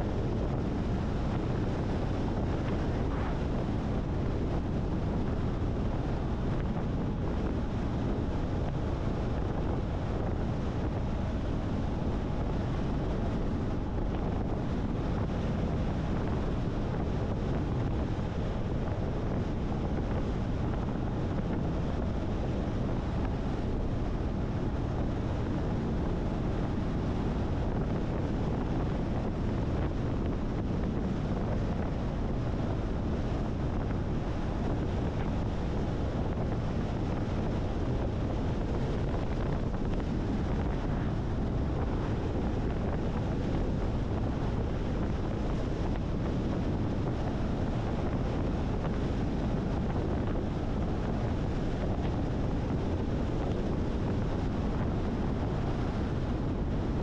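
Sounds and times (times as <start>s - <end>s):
car road and wind noise: 0.0s - 57.0s.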